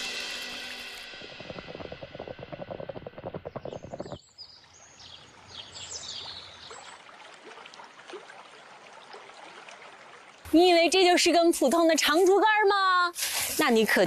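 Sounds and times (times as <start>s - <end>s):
birds chirping: 1.2s - 7.1s.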